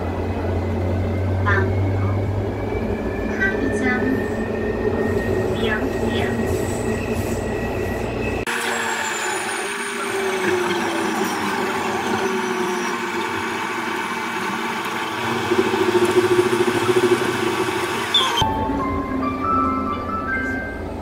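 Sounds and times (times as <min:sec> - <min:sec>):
train running noise: 0:00.0 - 0:21.0
pulsing tone: 0:00.8 - 0:20.8
motor whine: 0:08.4 - 0:18.8.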